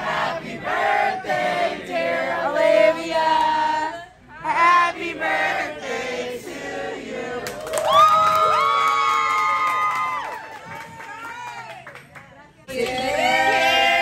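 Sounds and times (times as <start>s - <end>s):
group singing birthday song: 0.0s - 7.7s.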